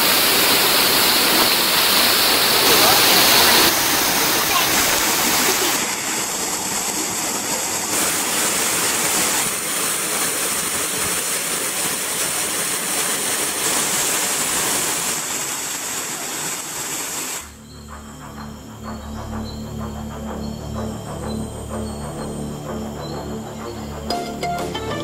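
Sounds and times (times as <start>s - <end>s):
waterfall rushing into pool: 0.0s - 17.6s.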